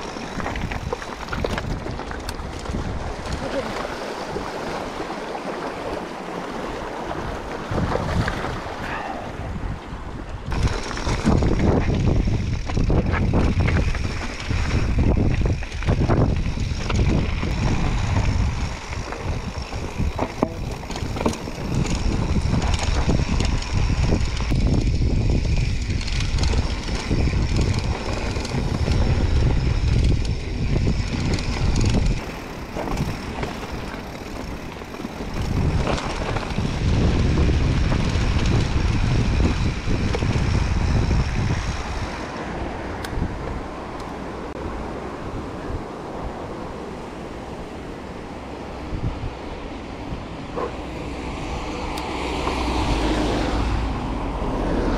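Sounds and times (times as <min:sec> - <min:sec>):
bike rattling and clattering: 0:00.0 - 0:03.8, 0:10.3 - 0:44.2
wind buffeting microphone: 0:00.0 - 0:54.9.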